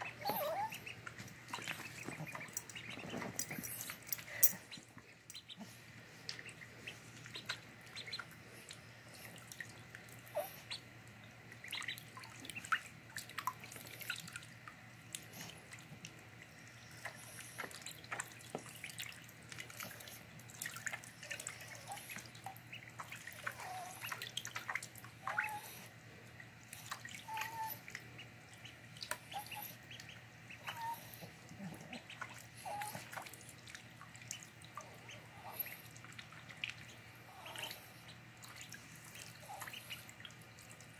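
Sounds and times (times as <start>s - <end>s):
ducklings peeping: 0.0s - 3.8s, 4.7s - 14.4s, 16.6s - 25.9s, 26.8s - 40.8s
ducklings splashing in water: 0.0s - 3.8s, 4.7s - 40.9s.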